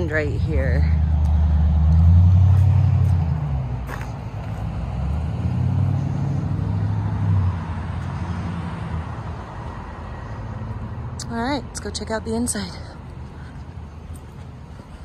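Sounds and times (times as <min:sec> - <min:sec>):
vehicle engine hum: 0:00.0 - 0:15.0
vehicle passing: 0:00.0 - 0:15.0.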